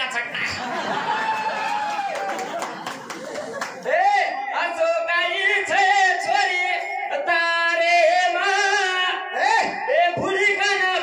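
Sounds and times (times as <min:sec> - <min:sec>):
man singing into a microphone: 0:03.8 - 0:11.0.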